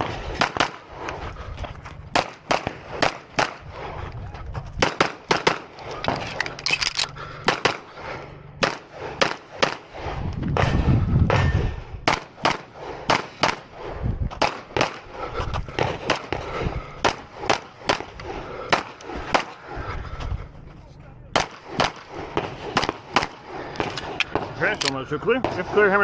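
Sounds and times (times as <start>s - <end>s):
pistol shots: 0.0s - 0.9s, 2.1s - 3.6s, 4.8s - 7.9s, 8.6s - 10.0s, 12.0s - 15.1s, 15.8s - 19.6s, 21.3s - 26.0s
low rumble: 0.0s - 25.8s.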